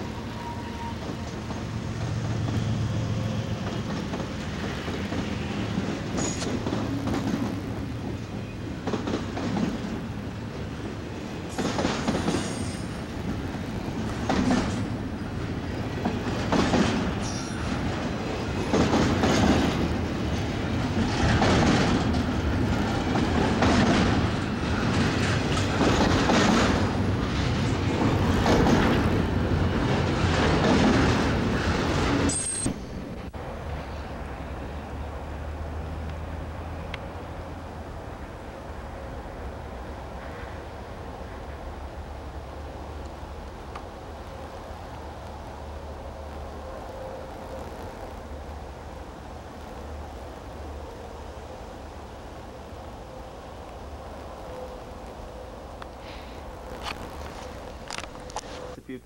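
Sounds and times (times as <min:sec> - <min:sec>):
high wheel squeals: 0:00.0 - 0:01.4, 0:12.3 - 0:13.1, 0:17.2 - 0:17.8, 0:32.3 - 0:33.0
train wheels clattering on rails: 0:00.0 - 0:33.4
diesel locomotive rumble: 0:00.0 - 0:59.0.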